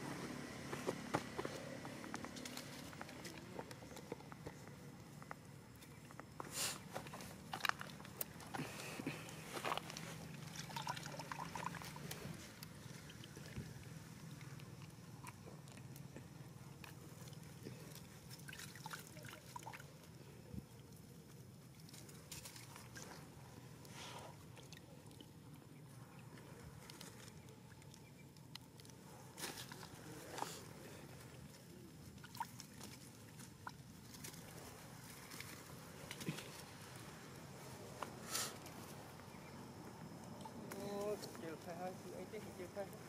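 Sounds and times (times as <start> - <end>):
low steady hum: 0.0 - 43.0
water sloshing: 5.7 - 38.9
monkeys slurping water: 5.8 - 38.9.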